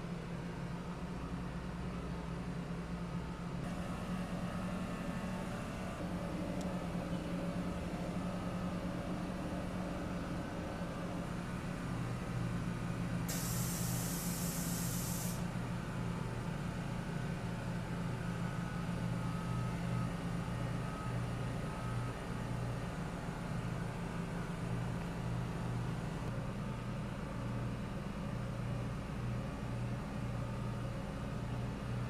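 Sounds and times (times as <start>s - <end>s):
machinery hum: 0.1s - 32.0s
compressed air venting hiss: 13.3s - 15.4s.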